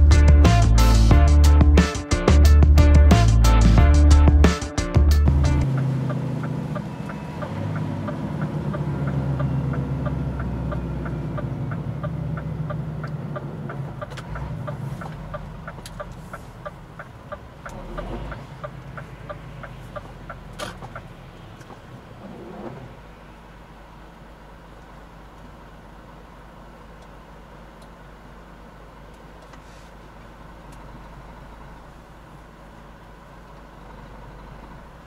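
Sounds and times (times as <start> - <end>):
low engine hum: 0.0 - 35.0
steady ticking: 1.2 - 21.2.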